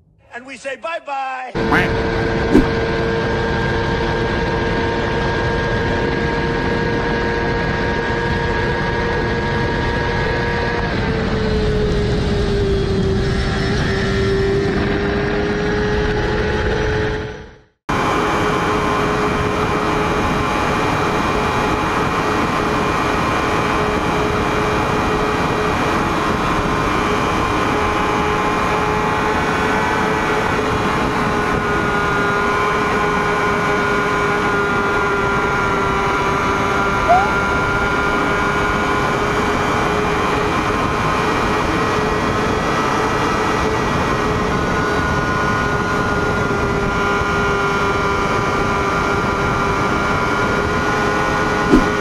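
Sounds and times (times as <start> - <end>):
motorcycle engine at high revs: 1.9 - 3.1, 18.6 - 52.0
brief chirp: 37.1 - 37.4.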